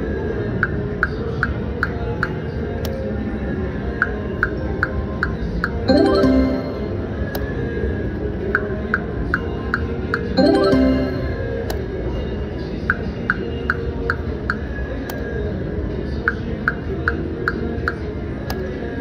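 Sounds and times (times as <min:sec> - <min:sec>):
background music: 0:04.4 - 0:12.4
short rising chime: 0:05.9 - 0:07.2, 0:10.4 - 0:11.6.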